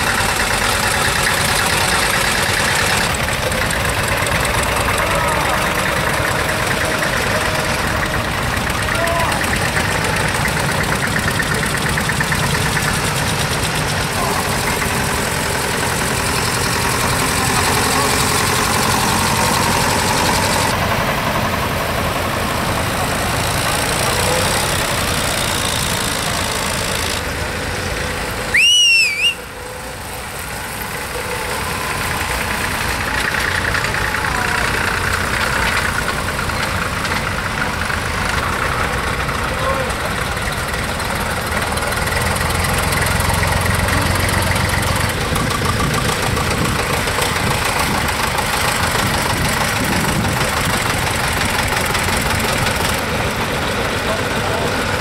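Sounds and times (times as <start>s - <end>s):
tractor diesel engines: 0.0s - 55.0s
shrill whistle: 28.5s - 29.5s.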